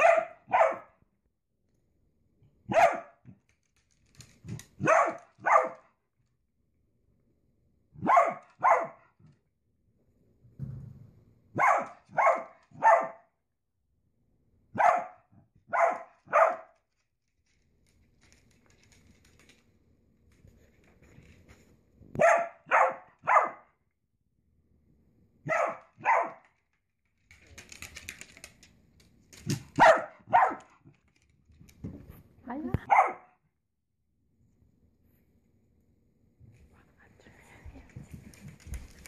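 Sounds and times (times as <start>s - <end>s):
dog barking: 0.0s - 1.0s, 2.7s - 3.2s, 4.8s - 5.9s, 8.0s - 9.2s, 11.6s - 13.3s, 14.7s - 16.8s, 22.2s - 23.7s, 25.4s - 26.4s, 29.8s - 30.8s, 32.8s - 33.4s.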